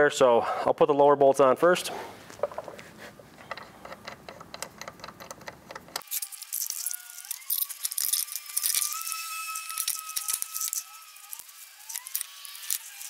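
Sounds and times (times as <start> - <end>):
light clicks and metallic rattling: 3.4 - 6.1.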